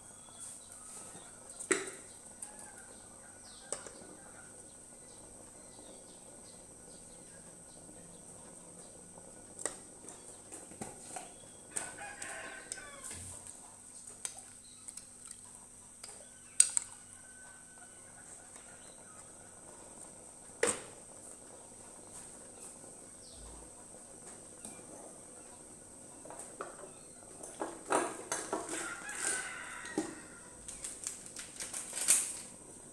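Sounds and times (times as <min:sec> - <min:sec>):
rooster crowing: 0:02.4 - 0:04.6, 0:11.7 - 0:13.4, 0:16.2 - 0:19.5, 0:28.5 - 0:30.8.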